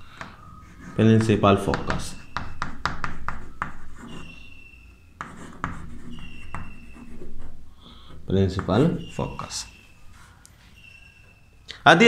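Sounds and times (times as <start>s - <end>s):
chalk squeaking on a chalkboard: 0.0s - 11.2s
chalk tapping: 0.2s - 4.5s, 5.2s - 9.6s.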